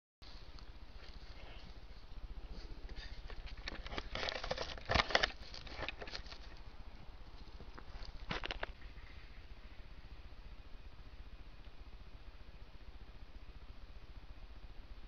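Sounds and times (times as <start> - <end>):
camera handling clicks and rustles: 3.0 - 6.6, 7.8 - 8.8.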